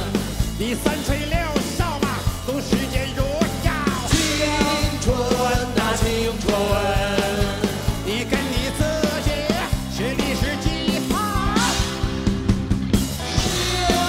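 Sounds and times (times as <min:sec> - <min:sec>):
live rock band playing: 0:00.0 - 0:14.0
sliding lead melody: 0:00.0 - 0:14.0
steady drum beat: 0:00.0 - 0:14.0.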